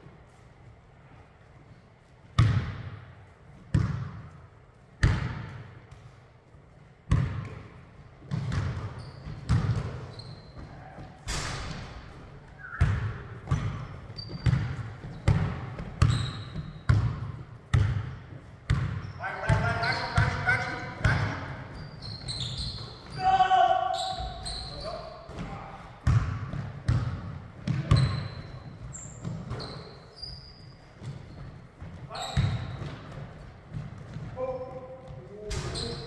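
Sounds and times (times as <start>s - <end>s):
basketball bouncing on hardwood floor: 3.7s - 4.2s, 5.0s - 5.6s, 7.1s - 7.7s, 8.3s - 10.0s, 12.8s - 19.6s, 25.3s - 29.8s, 31.0s - 34.4s
sneaker squeaks on floor: 8.3s - 11.1s, 12.5s - 17.2s, 18.7s - 26.3s, 27.7s - 34.6s, 35.5s - 36.0s.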